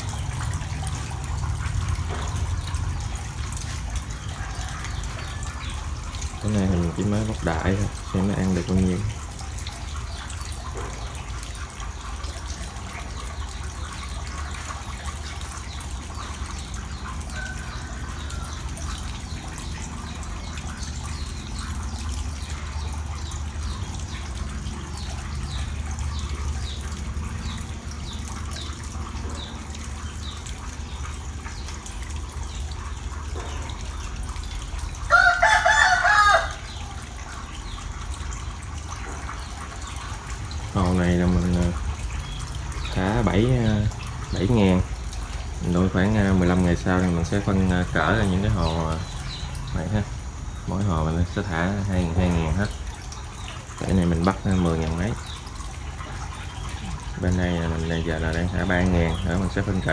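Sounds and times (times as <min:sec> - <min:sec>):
faint trickling water: 0:00.0 - 0:59.9
rooster crowing: 0:35.1 - 0:36.7.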